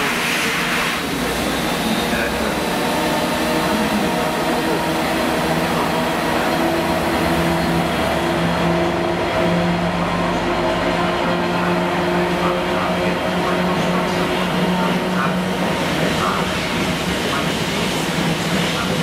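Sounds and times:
diesel locomotive engine running: 0.0s - 19.0s.

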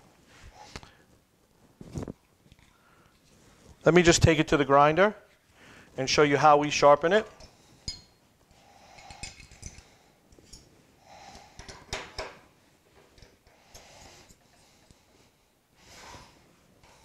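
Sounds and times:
soft rustling: 0.0s - 4.1s
faint metallic clicks and knocks: 11.6s - 15.0s.

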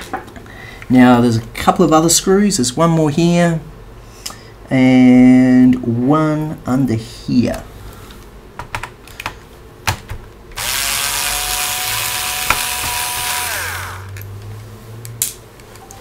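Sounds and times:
electric screwdriver whirring: 10.6s - 14.3s.

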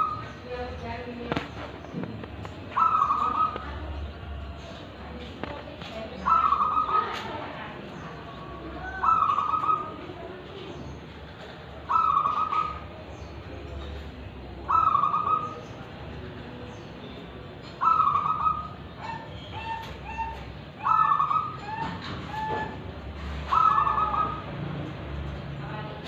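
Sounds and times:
dove cooing: 1.3s - 5.5s, 6.1s - 7.6s, 8.6s - 10.7s, 11.4s - 13.1s, 14.6s - 16.2s, 17.6s - 24.5s.

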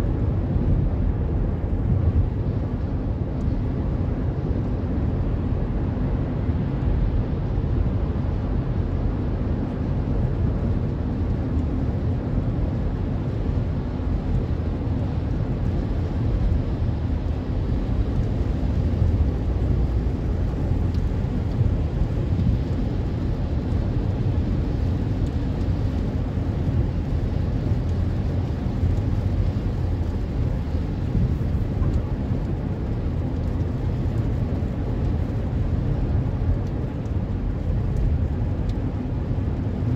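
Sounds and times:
road rumble inside car: 0.0s - 39.9s.

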